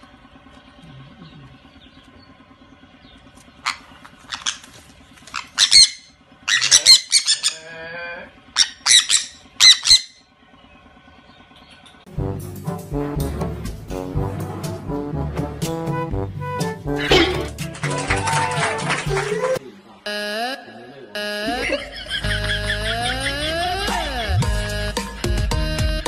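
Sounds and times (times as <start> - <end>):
parrots screeching: 3.6 - 7.9, 8.5 - 10.2
lower wavering bird call: 8.5 - 10.3.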